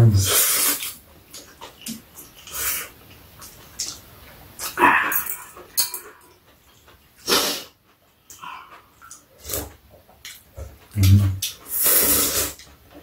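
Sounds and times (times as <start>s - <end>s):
people slurping noodles: 0.1s - 1.0s, 7.2s - 7.8s, 9.4s - 9.8s, 11.0s - 12.7s.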